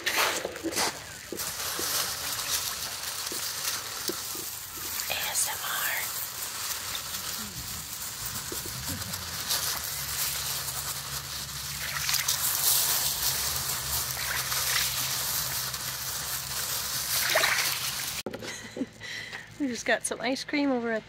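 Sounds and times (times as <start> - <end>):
small splashes: 0.1 - 5.1, 11.4 - 18.2.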